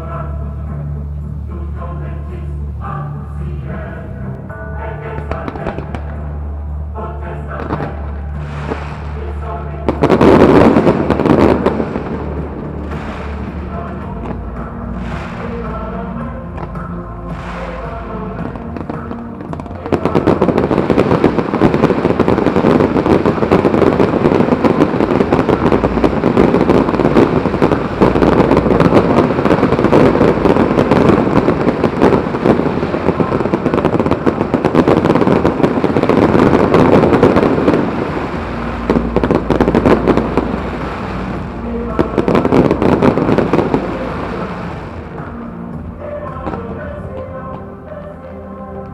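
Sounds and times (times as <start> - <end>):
fireworks crackling and popping: 4.6 - 6.4, 7.4 - 48.2.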